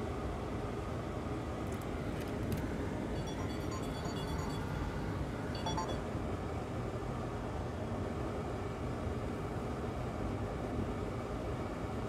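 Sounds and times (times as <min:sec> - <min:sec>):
short electronic beep: 0:03.2 - 0:05.0, 0:05.6 - 0:06.0.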